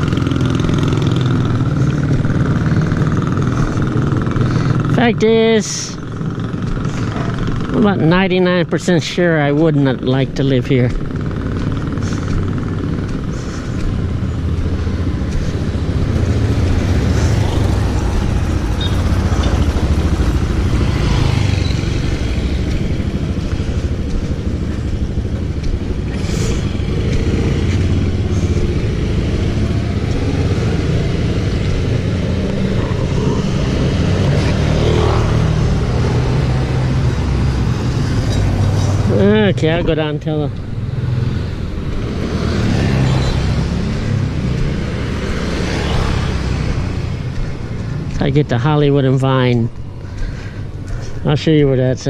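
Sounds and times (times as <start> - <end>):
motorcycle engine running: 0.0 - 52.0
street traffic: 0.0 - 52.0.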